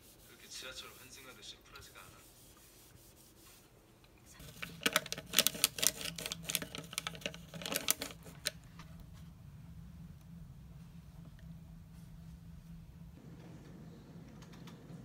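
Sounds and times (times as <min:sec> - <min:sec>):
low steady hum: 0:00.0 - 0:15.0
plastic packet crinkling: 0:04.4 - 0:08.6.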